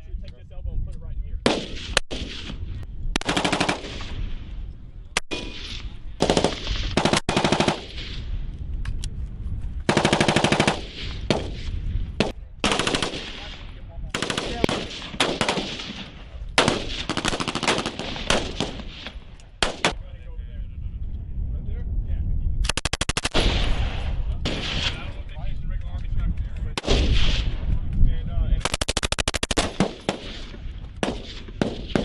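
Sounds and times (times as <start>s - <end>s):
rifle shots: 1.4s - 4.4s, 5.2s - 8.3s, 9.9s - 20.0s, 22.7s - 25.1s, 26.8s - 27.6s, 28.6s - 32.0s
machine-gun bursts: 3.2s - 3.8s, 6.2s - 7.9s, 9.9s - 10.8s, 12.6s - 13.2s, 16.6s - 18.7s, 22.7s - 23.4s, 28.6s - 30.2s.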